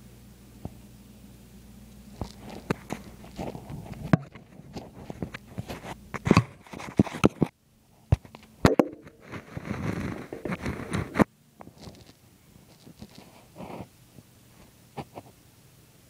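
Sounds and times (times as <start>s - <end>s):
phone handling clicks and knocks: 8.2s - 9.2s.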